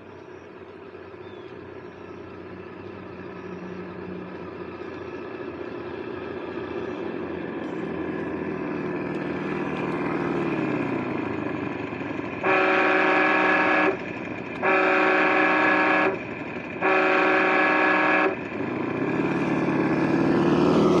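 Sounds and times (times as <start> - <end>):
simulated engine sound: 0.0 - 21.0
horn blasts: 12.4 - 14.0, 14.6 - 16.2, 16.8 - 18.4.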